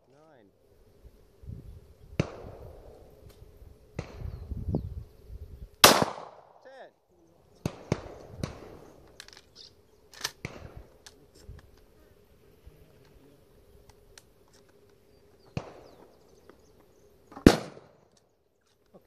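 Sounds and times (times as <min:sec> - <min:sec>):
shotgun shots: 0:02.2 - 0:02.6, 0:05.8 - 0:06.6, 0:07.6 - 0:08.8, 0:17.4 - 0:18.1.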